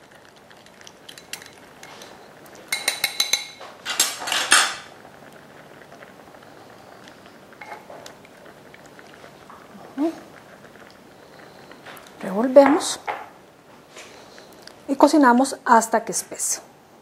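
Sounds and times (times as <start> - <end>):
spoon clinking against glass bowl: 1.1 - 3.6.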